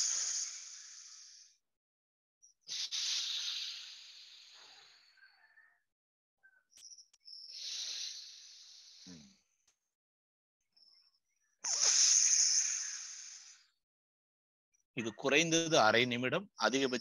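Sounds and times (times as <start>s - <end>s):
hissing nostril breaths: 0.0s - 1.6s, 2.7s - 5.2s, 7.4s - 9.4s, 11.6s - 13.7s.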